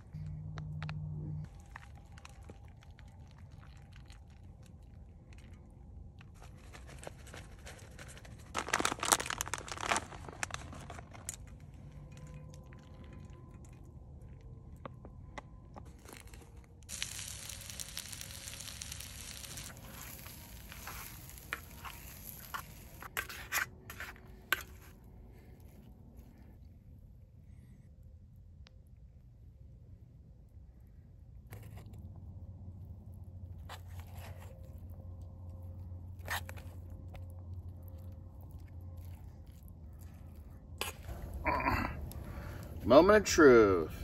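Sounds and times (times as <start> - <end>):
plastic bag crinkling: 6.2 - 13.7, 15.9 - 24.0, 33.8 - 43.0.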